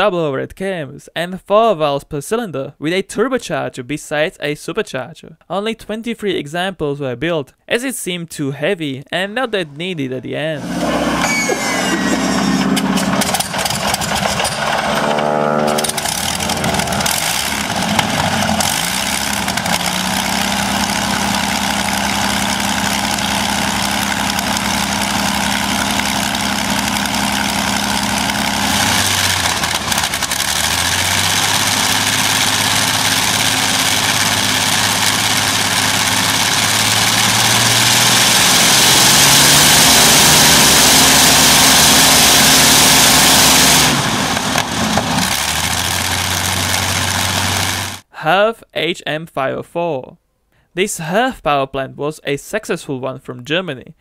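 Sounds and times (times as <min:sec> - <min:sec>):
aircraft engine running: 0:09.4 - 0:48.0.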